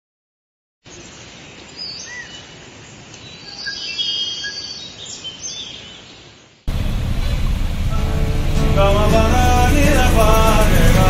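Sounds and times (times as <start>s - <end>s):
birds calling and chirping: 0.9s - 8.3s
steady hiss: 6.3s - 11.0s.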